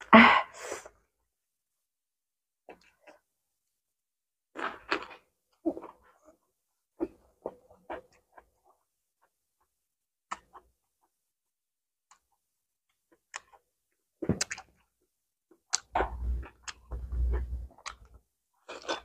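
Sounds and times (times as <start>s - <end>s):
mouth clicks while chewing: 10.3s - 10.7s, 12.1s - 12.3s, 13.1s - 13.6s, 14.3s - 14.8s, 15.6s - 19.0s.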